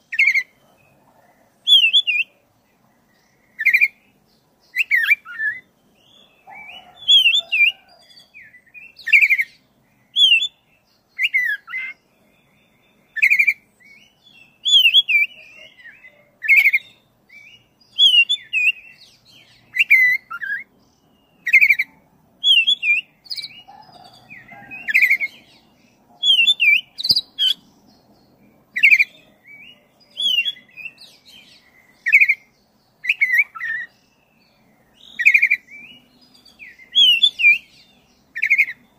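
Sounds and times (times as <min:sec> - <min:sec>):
bird singing whistled phrases: 0:01.7 - 0:02.3, 0:04.7 - 0:10.6, 0:11.2 - 0:19.0, 0:19.7 - 0:20.7, 0:21.3 - 0:25.5, 0:26.2 - 0:27.6, 0:28.8 - 0:34.0, 0:35.0 - 0:37.7.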